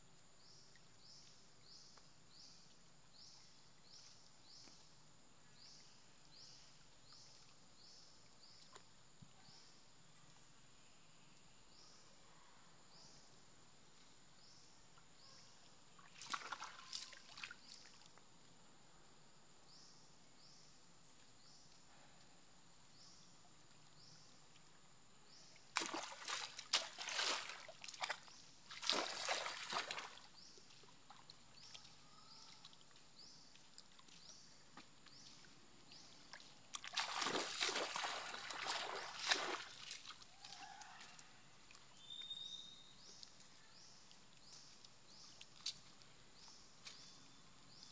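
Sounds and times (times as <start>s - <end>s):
monkey splashing in muddy puddle: 16.0s - 18.1s, 25.7s - 31.8s, 36.7s - 40.8s.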